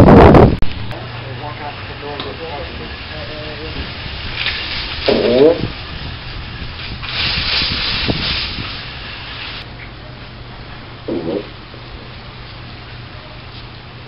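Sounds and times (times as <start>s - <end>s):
mouth fart noise: 5.0s - 5.7s, 11.0s - 11.6s.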